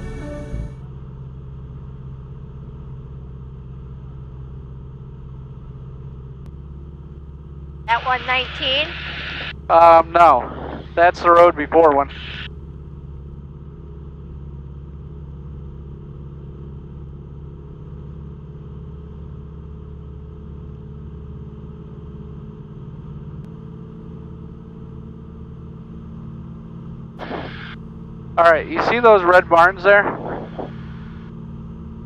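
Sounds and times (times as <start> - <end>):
airplane engine drone: 0.0 - 4.4, 6.5 - 16.3, 22.8 - 32.0.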